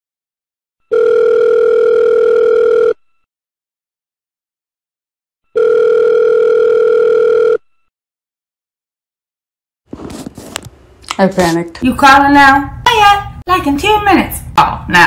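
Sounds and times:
telephone ringback tone: 0.8 - 3.2, 5.5 - 7.9.

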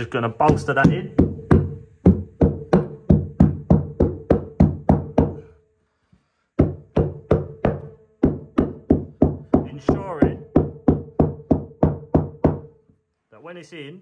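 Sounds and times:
fast percussive beat: 0.0 - 5.4, 6.6 - 12.7.

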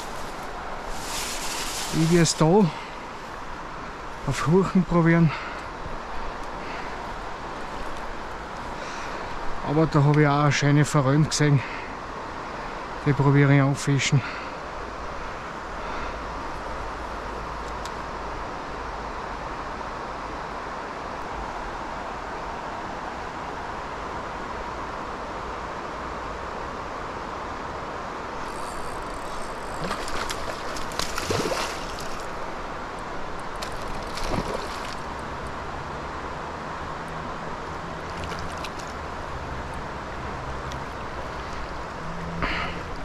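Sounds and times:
short rising squeaks: 28.4 - 30.5
fast-flowing river rushing: 28.4 - 41.2.

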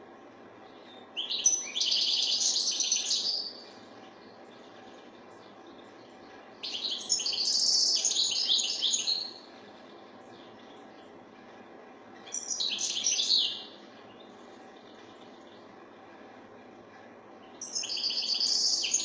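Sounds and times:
finch twittering song: 0.7 - 11.1, 12.2 - 15.7, 17.4 - 19.0.

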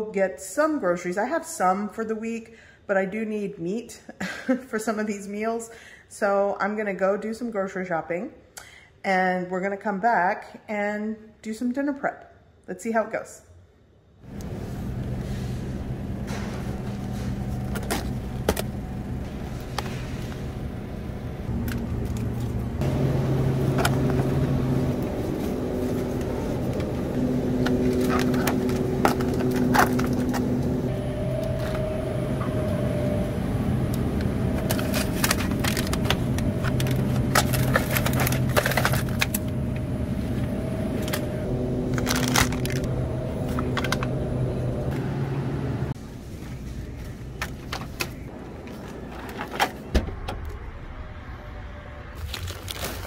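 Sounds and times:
low hum: 14.2 - 53.0.

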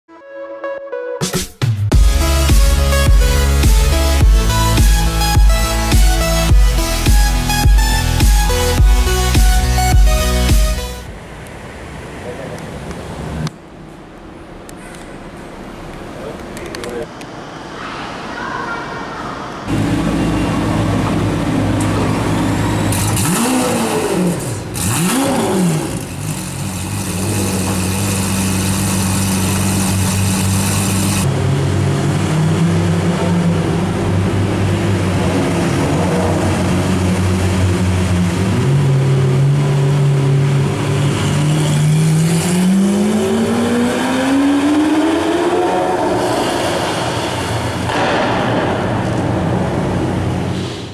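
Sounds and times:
loud car engine idling and revving: 1.9 - 17.3, 19.6 - 50.9
car accelerating away: 19.7 - 50.9.

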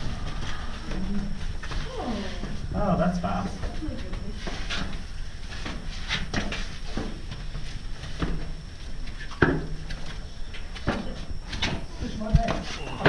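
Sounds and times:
steady low rumble: 0.0 - 5.5.

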